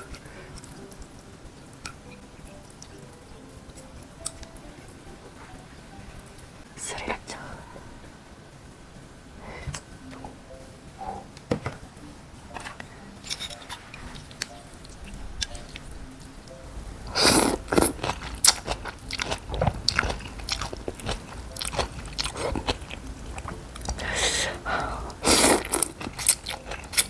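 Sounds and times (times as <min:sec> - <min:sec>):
noodles being slurped: 0:17.1 - 0:27.0.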